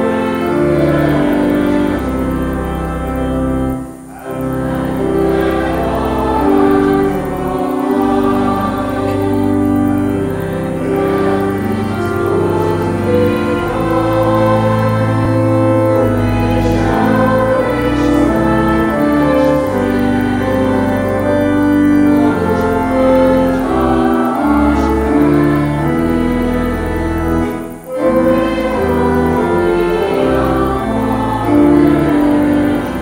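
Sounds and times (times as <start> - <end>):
organ chords: 0.0 - 33.0
voices singing a hymn: 0.0 - 33.0.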